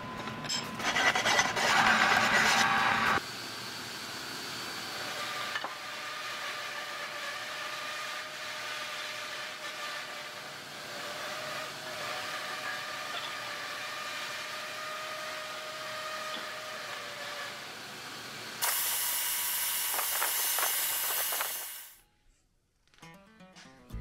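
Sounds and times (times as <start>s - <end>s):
aerosol spray paint hissing: 18.6s - 21.9s.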